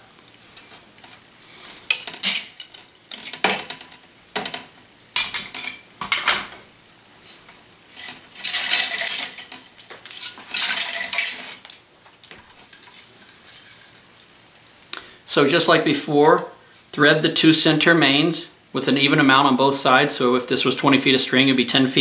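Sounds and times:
scraping sounds: 7.2 - 11.6.

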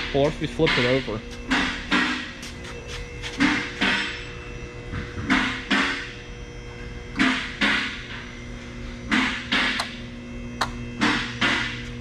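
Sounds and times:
sustained tone: 0.0 - 9.4.

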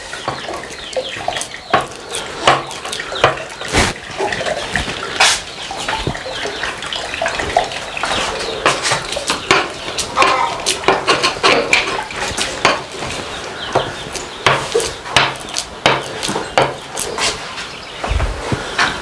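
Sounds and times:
hens clucking: 0.0 - 19.0
spoon knocking and scraping wood: 0.1 - 4.0, 8.0 - 17.4.

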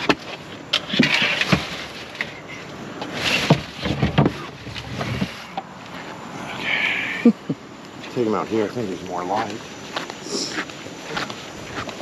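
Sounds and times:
knocks and scrapes against cooler: 0.0 - 2.4, 3.0 - 6.2.

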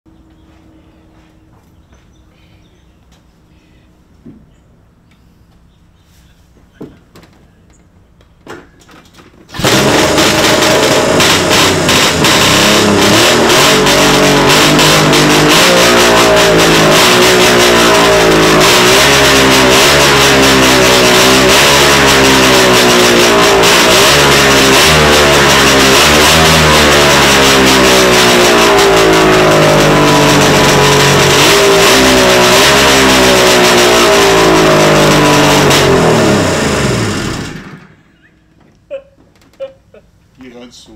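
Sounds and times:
two-stroke engine revving: 9.5 - 38.1.

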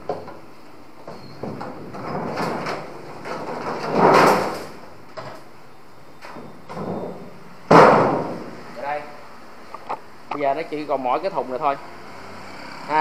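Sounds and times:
plastic and metal scraping: 1.1 - 5.4
sharp knock of metal cabinet: 7.7 - 8.5.

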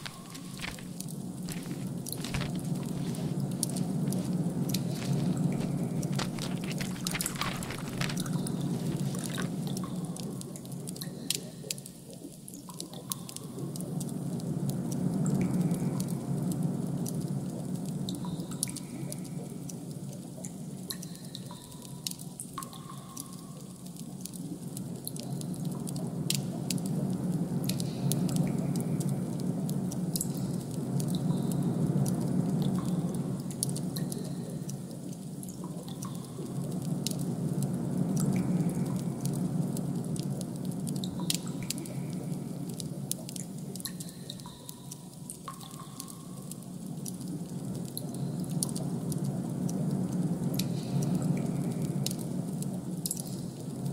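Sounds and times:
drip-like plinks: 18.0 - 26.9, 40.1 - 47.2, 53.0 - 53.6
low ambient drone: 23.0 - 53.9.

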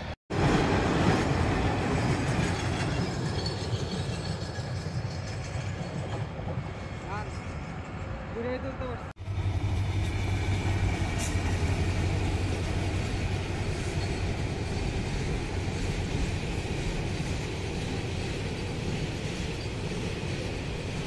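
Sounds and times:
diesel locomotive engine droning: 0.0 - 21.0
freight train wagons rolling on rails: 0.4 - 8.4, 9.2 - 21.0.

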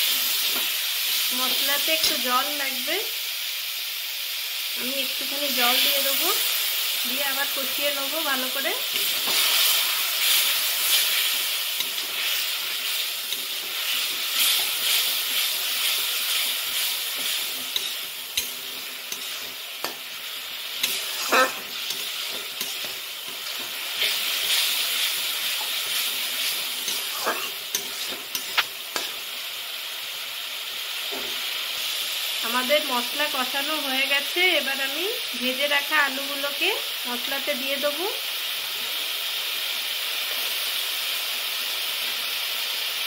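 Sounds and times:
paste sizzling in a wok: 0.0 - 43.0
steel spatula scraping a pan: 8.9 - 20.0, 20.7 - 29.2.

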